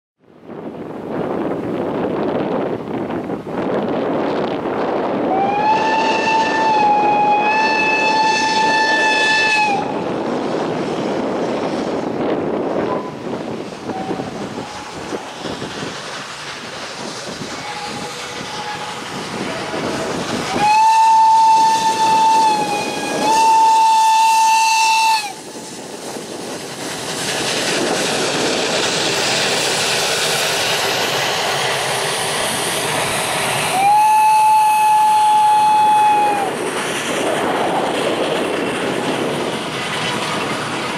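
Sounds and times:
train coaches rumbling: 0.3s - 40.9s
steam whistle blasts: 5.3s - 10.0s, 17.6s - 25.4s, 33.7s - 36.6s
steam locomotive chuffing: 5.3s - 40.9s.

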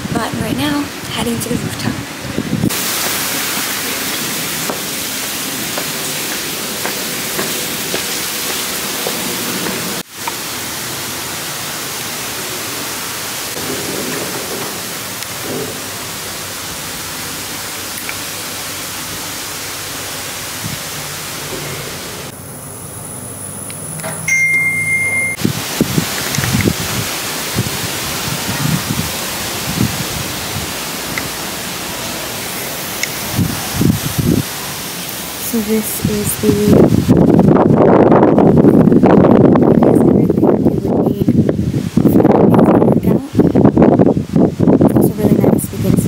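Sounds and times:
steady rushing noise: 0.0s - 22.4s, 25.2s - 46.0s
high electronic beep: 24.3s - 25.4s.

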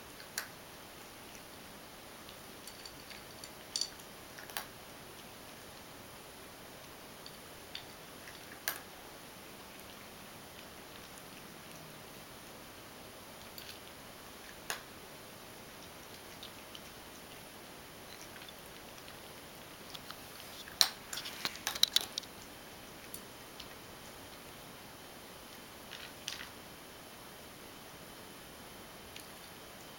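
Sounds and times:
faint steady hiss: 0.0s - 29.9s
cat crunching dry kibble: 18.1s - 22.4s.

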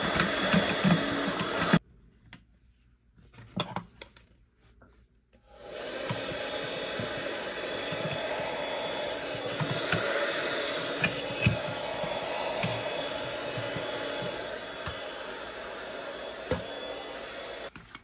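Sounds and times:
mini vacuum whirring: 0.0s - 1.8s, 5.4s - 17.8s.

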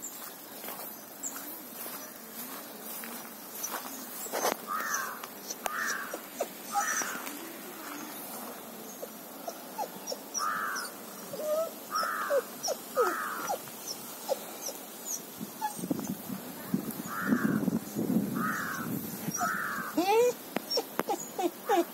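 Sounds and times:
birds chirping: 0.0s - 21.9s
crows cawing: 4.7s - 7.4s, 10.4s - 10.9s, 11.9s - 13.6s, 17.1s - 17.7s, 18.4s - 20.0s.

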